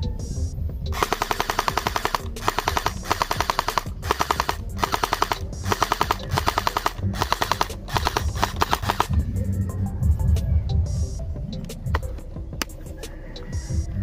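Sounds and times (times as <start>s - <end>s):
gel blaster firing bursts: 1.0s - 9.2s.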